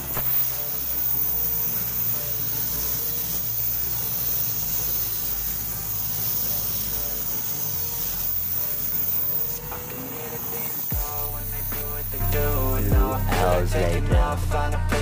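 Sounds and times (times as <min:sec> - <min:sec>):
paint spray gun hissing: 0:00.0 - 0:13.5
music with deep bass line: 0:11.0 - 0:15.0.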